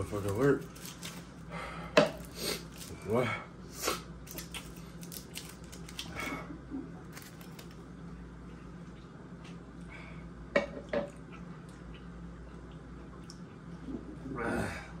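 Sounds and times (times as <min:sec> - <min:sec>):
foil wrapper crinkling: 0:00.0 - 0:01.4, 0:02.2 - 0:03.1, 0:04.2 - 0:06.3, 0:07.1 - 0:07.8
quiet chewing: 0:11.1 - 0:14.2.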